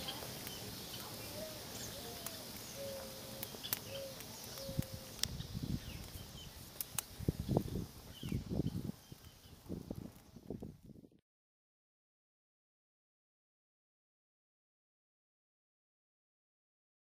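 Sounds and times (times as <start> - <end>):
bird calling low notes: 0.0 - 6.5
campfire crackling: 0.0 - 11.1
sharp pops and snaps: 2.2 - 5.4, 6.0 - 7.2.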